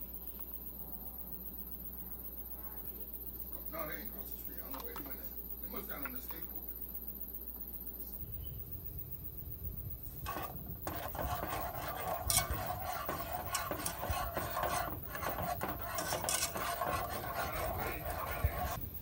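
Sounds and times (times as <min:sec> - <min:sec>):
utensil scraping food in pan: 0:10.2 - 0:18.8.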